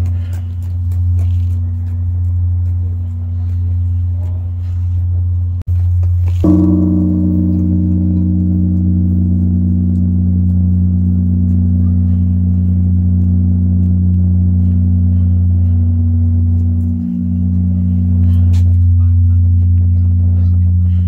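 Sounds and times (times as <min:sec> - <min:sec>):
large bell ringing: 0:06.3 - 0:21.0.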